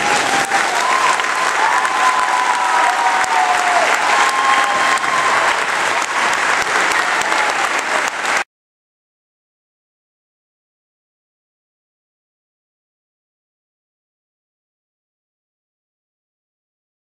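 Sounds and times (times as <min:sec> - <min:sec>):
high calls from crowd: 0:00.0 - 0:08.4
audience clapping: 0:00.0 - 0:08.5.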